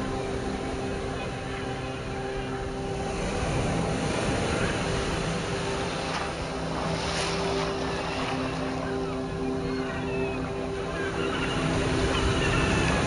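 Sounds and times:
surf washing onto beach: 0.9 - 9.1.

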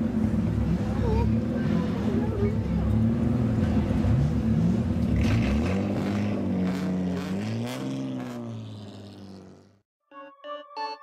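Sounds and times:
car engine revving: 2.9 - 9.8.

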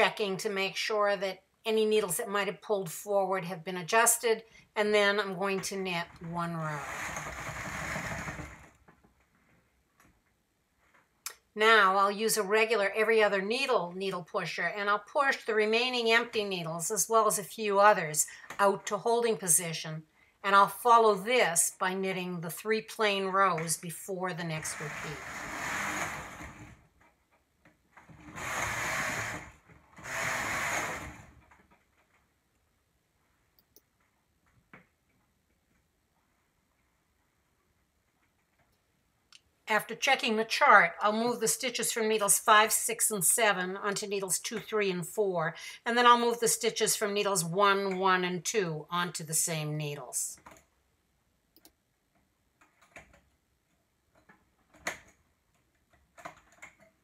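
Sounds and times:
knitting machine carriage rattling: 6.7 - 8.8, 24.6 - 27.1.

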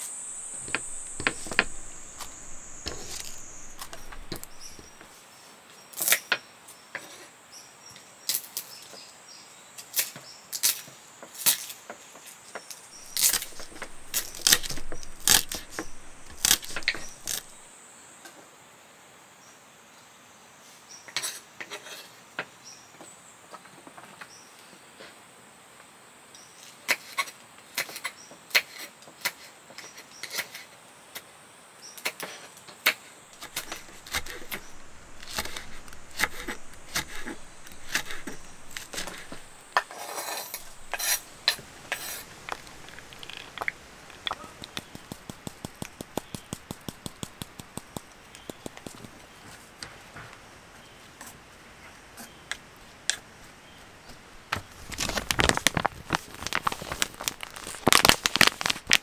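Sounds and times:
quick evenly spaced taps: 40.6 - 49.2.

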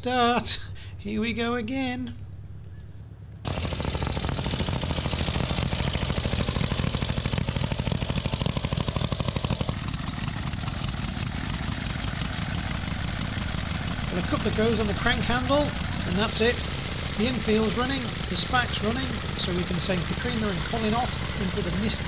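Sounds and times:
motorcycle engine running: 2.2 - 22.0.

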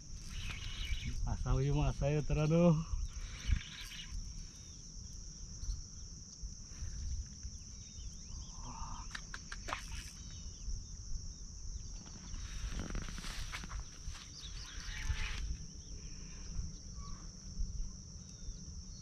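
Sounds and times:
insects buzzing: 0.0 - 19.0
bird chirps: 0.2 - 1.4, 3.0 - 4.8, 13.8 - 16.0.

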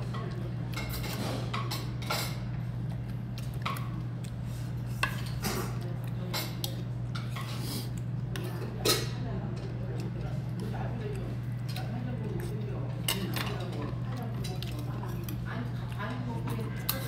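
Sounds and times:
utensils clinking on metal bowl: 0.0 - 2.5, 5.0 - 7.6, 8.3 - 10.3, 11.0 - 17.0
low background hum: 0.0 - 17.0.

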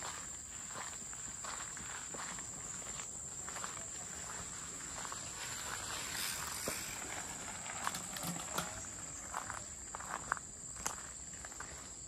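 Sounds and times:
footsteps: 0.0 - 12.0
insect drone: 0.0 - 12.0.

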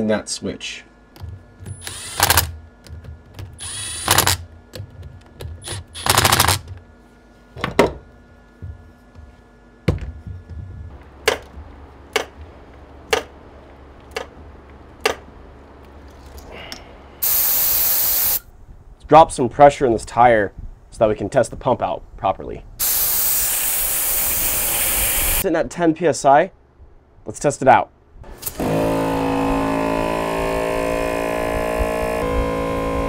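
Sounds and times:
low steady hum: 0.0 - 17.6
sharp clicks and knocks: 1.1 - 6.8, 9.9 - 13.4, 14.0 - 15.3
rattling bursts: 1.5 - 6.8.

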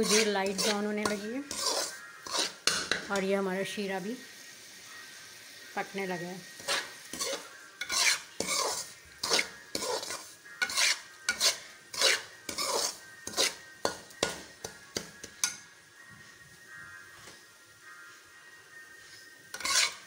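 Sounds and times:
metal spoon scraping a steel pan: 0.0 - 3.2, 6.6 - 14.4, 19.5 - 20.0.

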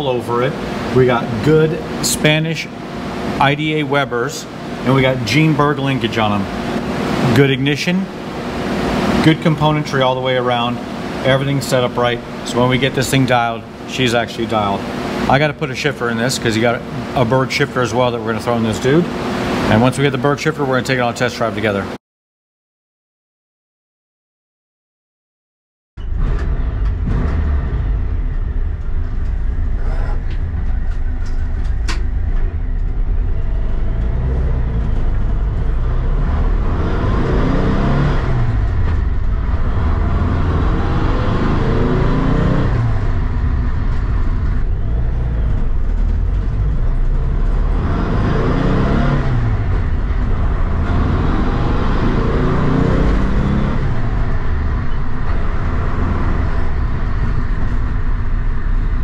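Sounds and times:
van engine revving through gears: 26.0 - 59.0.

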